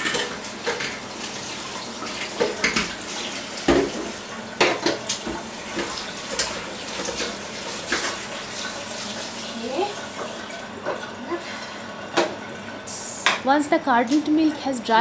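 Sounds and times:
tap running into steel sink: 2.0s - 8.2s, 12.1s - 12.4s.

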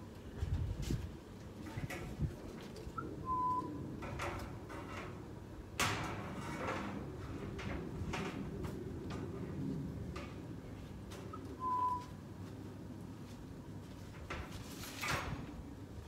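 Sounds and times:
bird whistle: 3.2s - 3.7s, 11.6s - 12.1s
rough scraping and rustling: 13.2s - 15.6s.

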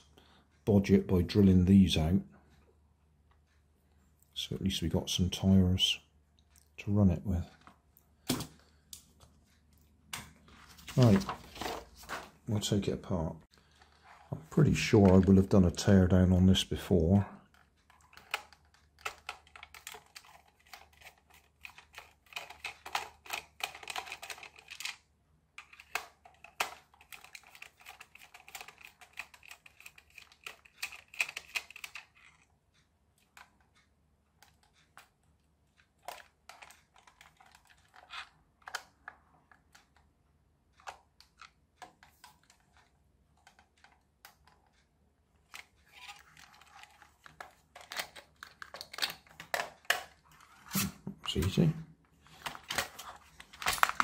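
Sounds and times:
plastic parts clicking and tapping: 17.4s - 25.0s, 25.6s - 40.1s, 40.7s - 50.5s, 52.3s - 54.0s
screwdriver clicking and scratching: 17.9s - 25.0s, 25.6s - 32.5s, 45.5s - 50.2s.

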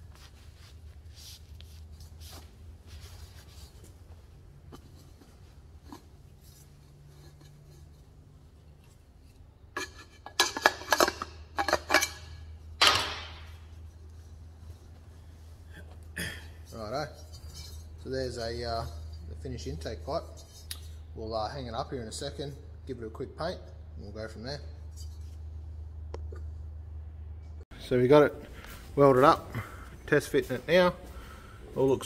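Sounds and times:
cloth rag rubbing on metal pipe: 0.0s - 9.4s.

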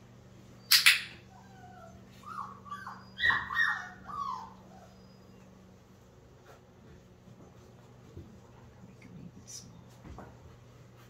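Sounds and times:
puppy whimpering: 0.6s - 5.7s.

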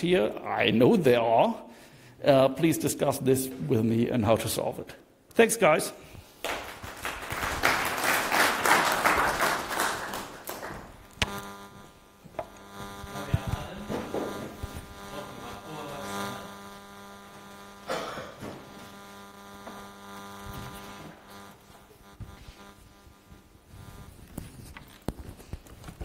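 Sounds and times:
electrical mains hum: 0.0s - 26.0s
audience applause: 6.4s - 11.0s.

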